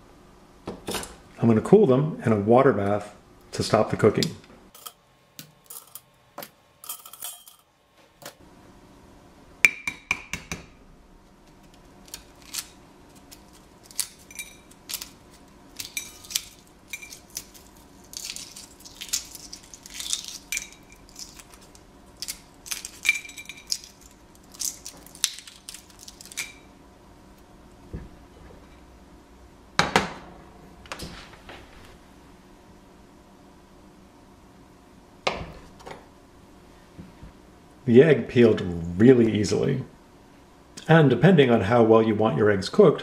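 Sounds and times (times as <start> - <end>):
metal tongs clinking on steel pot: 4.8 - 5.0
eggshell cracking: 11.6 - 26.6.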